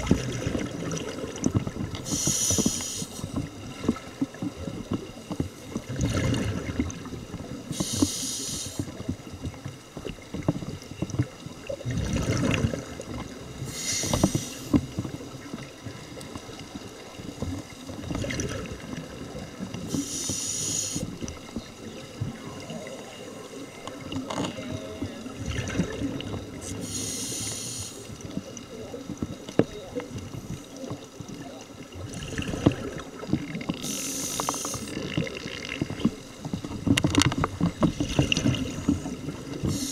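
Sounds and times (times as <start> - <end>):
exhaled air bubbling: 0.0 - 39.9
regulator inhalation hiss: 2.1 - 3.3, 7.7 - 8.9, 13.7 - 14.7, 19.9 - 21.1, 26.7 - 28.1, 33.8 - 34.9, 39.6 - 39.9.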